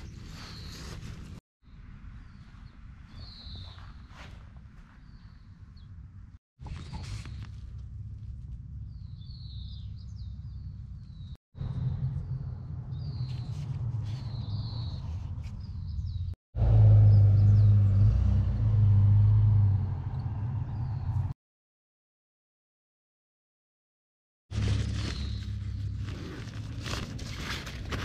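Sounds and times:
steady low rumble: 7.5s - 14.6s.

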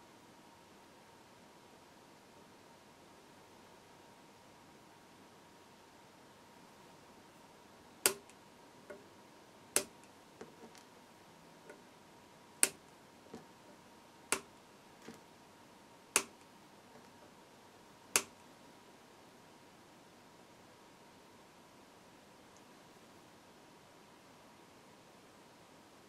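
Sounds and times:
faint steady whine: 0.0s - 26.0s
sharp clicks of metal leads: 16.2s - 17.2s.

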